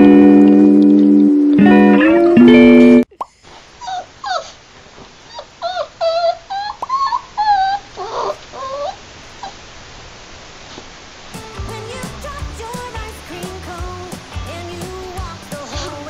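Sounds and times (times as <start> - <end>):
puppy whining: 3.8 - 4.6, 5.2 - 9.6.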